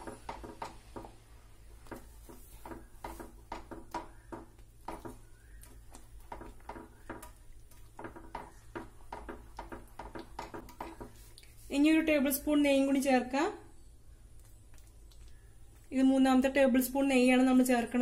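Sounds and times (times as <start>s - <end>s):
whisk knocking and scraping pan: 0.0s - 11.3s.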